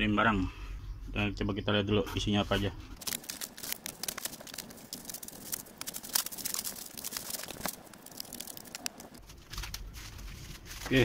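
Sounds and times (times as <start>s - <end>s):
packaging crinkling and rustling: 3.0s - 11.0s.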